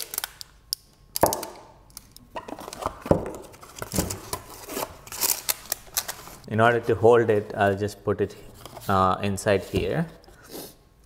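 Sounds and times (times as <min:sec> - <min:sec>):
plastic wrapping crinkling: 0:00.0 - 0:00.6, 0:02.6 - 0:06.5.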